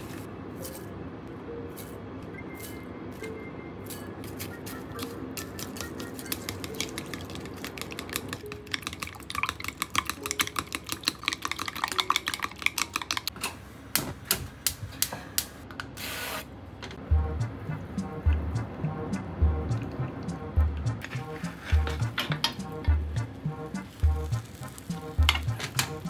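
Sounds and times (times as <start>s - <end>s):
chopsticks clicking against glass bowl: 5.4s - 13.3s.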